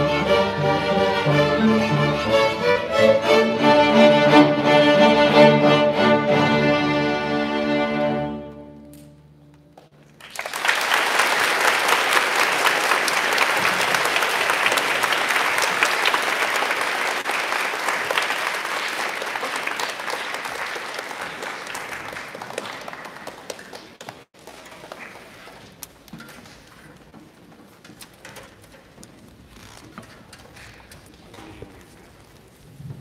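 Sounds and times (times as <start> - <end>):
string orchestra chord: 0.0 - 9.1
audience applauding: 9.8 - 25.4.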